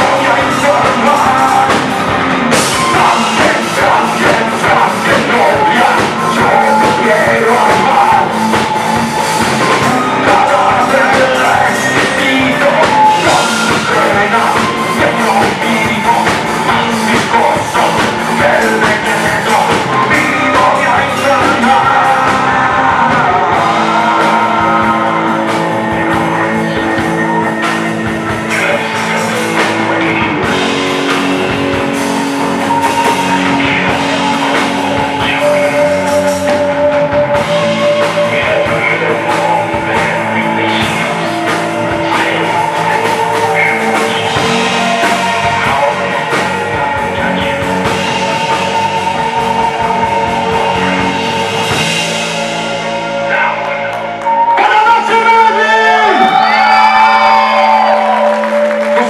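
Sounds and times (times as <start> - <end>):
bass guitar: 0.0 - 59.0
drum kit: 0.0 - 59.0
electric guitar: 0.0 - 59.0
person singing: 0.0 - 59.0.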